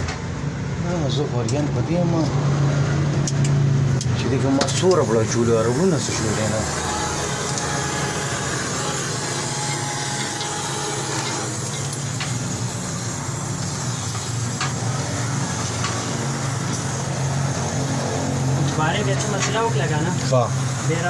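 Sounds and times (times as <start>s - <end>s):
welder humming and hissing: 4.6s - 21.0s.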